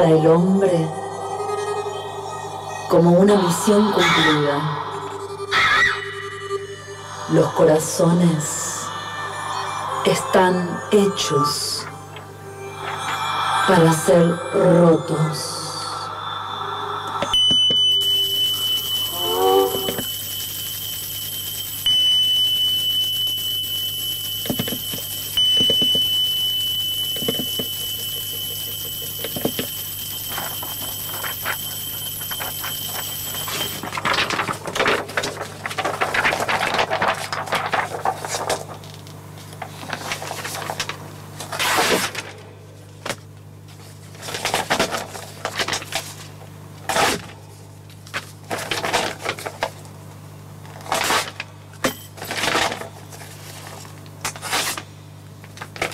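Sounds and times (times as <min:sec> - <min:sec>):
high-pitched electronic tone: 0:00.0 - 0:35.1.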